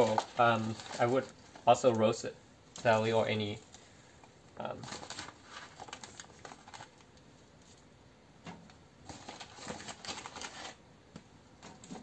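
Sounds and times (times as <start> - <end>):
vegetable scraps rustling: 0.0 - 2.0
plastic bag crinkling: 0.0 - 2.2, 4.7 - 7.1, 9.0 - 10.8.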